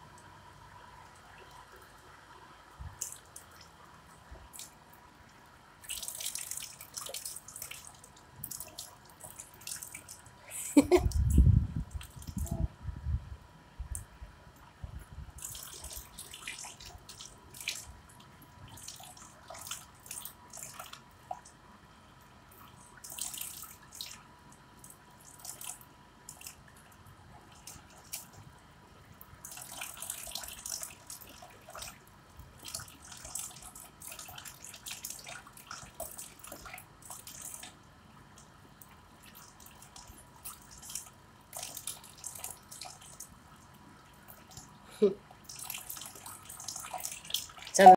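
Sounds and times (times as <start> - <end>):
water splashes and drips: 1.0 - 12.6, 15.3 - 21.6, 22.5 - 47.9
water trickling into tub: 5.8 - 12.6, 15.3 - 21.6, 22.6 - 47.9.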